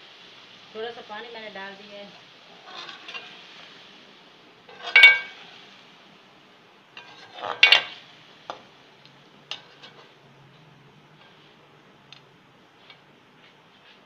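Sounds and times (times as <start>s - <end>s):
spatula scraping metal pot: 2.5s - 3.4s, 4.7s - 5.5s, 7.0s - 8.0s, 9.5s - 10.2s.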